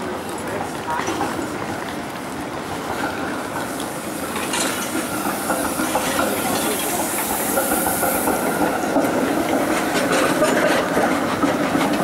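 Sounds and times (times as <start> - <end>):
train running noise: 0.0 - 12.0
rising hiss: 3.8 - 9.4.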